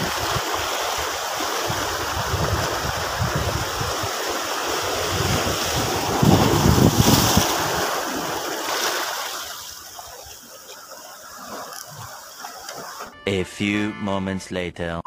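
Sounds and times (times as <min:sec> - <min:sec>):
wind buffeting microphone: 0:00.0 - 0:08.5
waves washing over rocky shore: 0:00.0 - 0:13.1.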